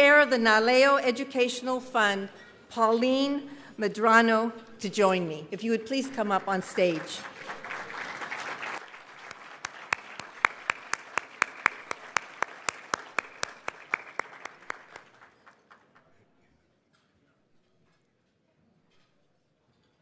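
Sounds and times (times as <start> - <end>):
audience applause: 6.9 - 15.7
close sharp hand claps: 7.0 - 15.8.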